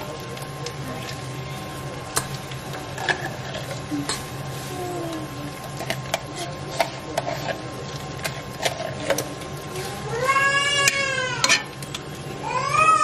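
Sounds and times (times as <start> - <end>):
metal spoon scraping pots: 5.7 - 9.9, 10.7 - 12.0.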